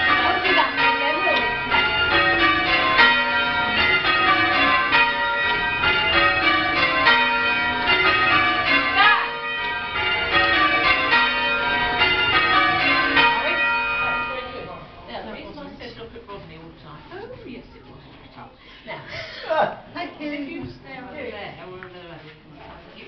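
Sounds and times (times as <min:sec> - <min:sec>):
church bells ringing: 0:00.0 - 0:15.6.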